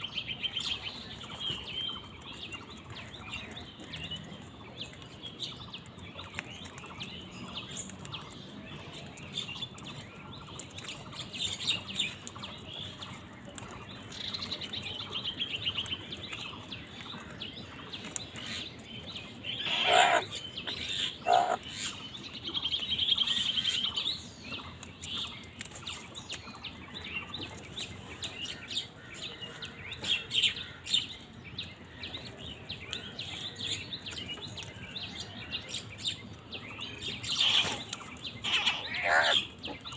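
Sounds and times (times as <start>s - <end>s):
small birds chirping and trilling: 0.0s - 39.9s
harsh crow calls: 19.6s - 20.3s, 21.2s - 21.6s, 38.4s - 39.5s.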